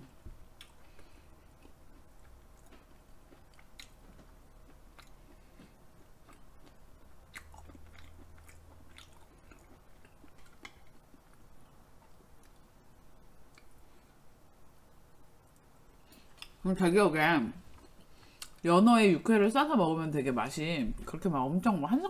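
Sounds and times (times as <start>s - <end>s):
person chewing with wet mouth sounds: 0.4s - 12.7s, 13.4s - 14.2s.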